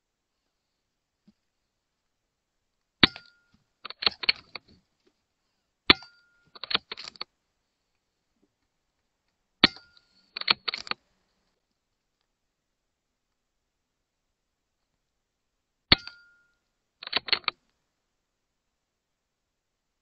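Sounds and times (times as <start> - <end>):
metallic clicks of rifle action: 3.0 - 4.8, 5.9 - 7.3, 9.6 - 11.0, 17.0 - 17.6.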